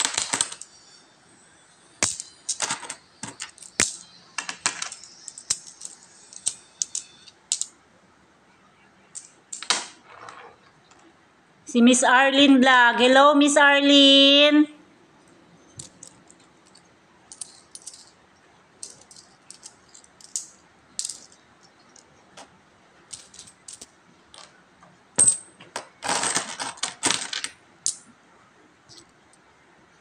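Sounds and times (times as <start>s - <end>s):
coins clinking: 0.0s - 0.9s, 2.0s - 7.8s, 9.1s - 11.1s, 15.6s - 18.2s, 18.8s - 24.6s, 25.2s - 28.1s.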